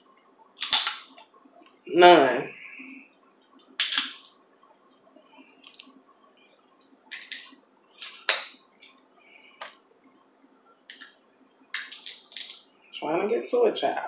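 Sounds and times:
crab shell cracking: 0.6 - 1.0.

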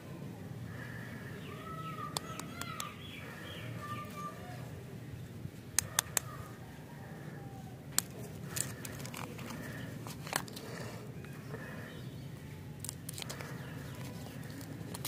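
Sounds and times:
sharp clicks and snaps: 2.1 - 3.0, 5.7 - 6.4.

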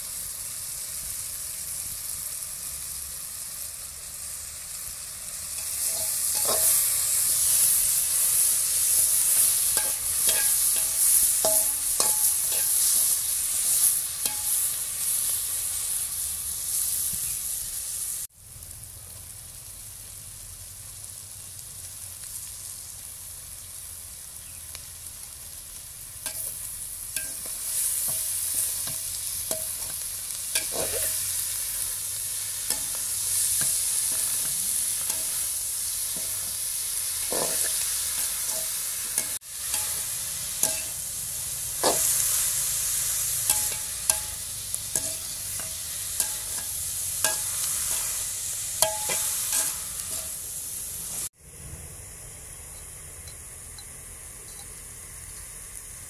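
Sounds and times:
vegetables sizzling in oil: 0.0 - 56.0
metal ladle scraping pan: 5.6 - 14.8, 27.2 - 41.1, 41.8 - 50.4.

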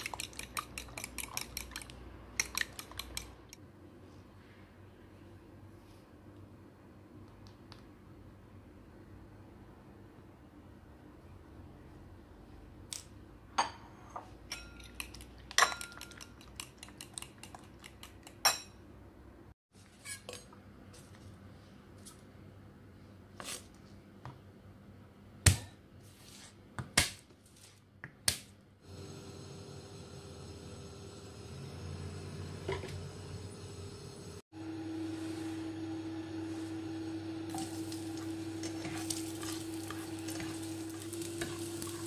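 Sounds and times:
spoon clinking against ceramic bowl: 0.0 - 3.3, 14.5 - 18.8.

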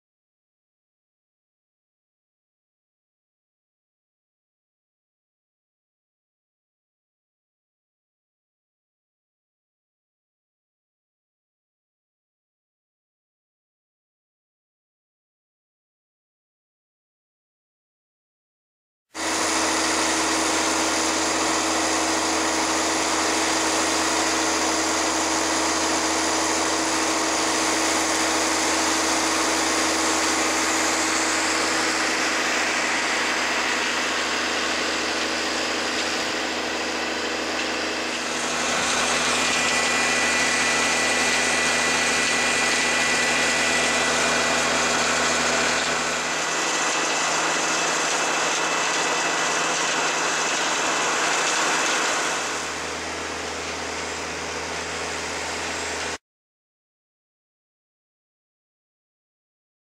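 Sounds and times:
thin high whine: 19.2 - 56.2
tractor diesel engine running: 19.2 - 56.2.

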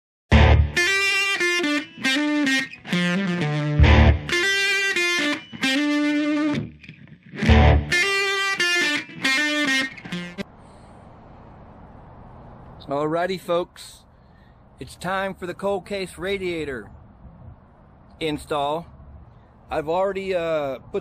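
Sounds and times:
distorted electric guitar chords: 0.3 - 10.4.

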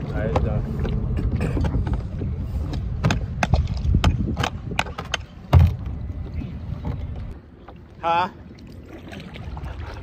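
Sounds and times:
wind rumble on microphone: 0.0 - 7.4.

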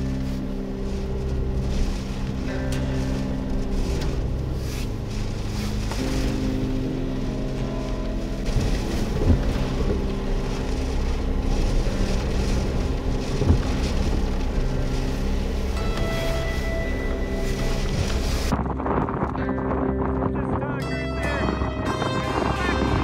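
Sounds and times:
background music of held chords: 0.0 - 23.0
strong wind buffeting microphone: 0.0 - 23.0
gusts thumping on microphone: 8.3 - 20.6.

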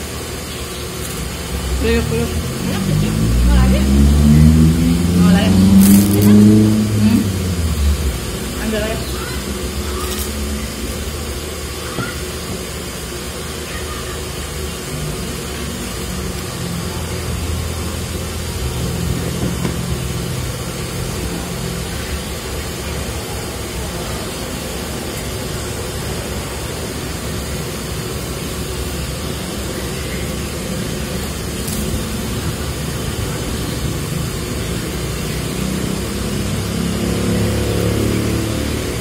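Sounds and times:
low hum: 0.0 - 13.5
background rumble and hiss: 0.0 - 35.4.

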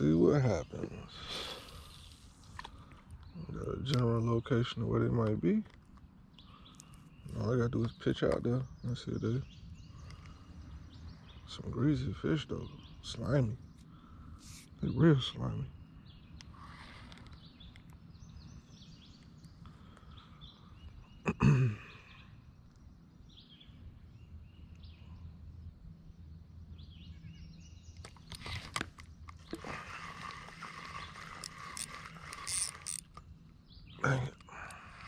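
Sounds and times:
fishing reel clicking: 28.2 - 33.2.

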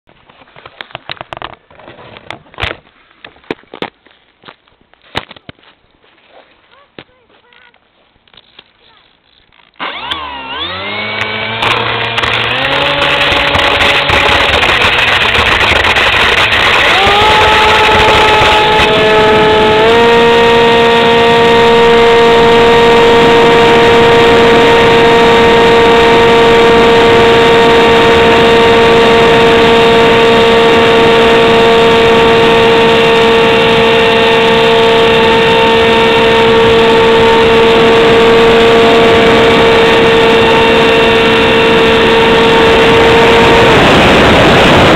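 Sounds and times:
electric model plane motor whine: 9.3 - 44.9.

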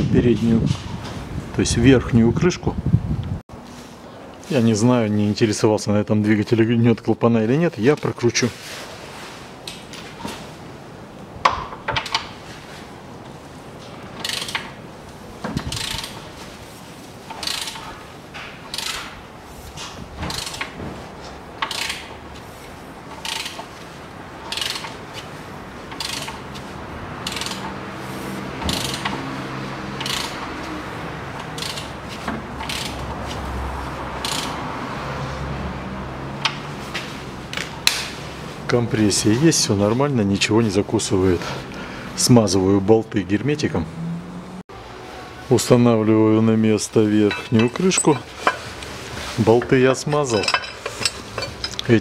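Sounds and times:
ratchet wrench clicking: 14.2 - 14.7, 15.7 - 16.2, 17.3 - 17.9, 18.7 - 19.1, 20.3 - 20.7, 21.6 - 22.1, 23.1 - 23.7, 24.5 - 25.0, 25.9 - 26.4, 27.2 - 27.7, 28.7 - 29.2, 30.0 - 30.4, 31.6 - 32.0, 32.6 - 33.0, 34.2 - 34.6.

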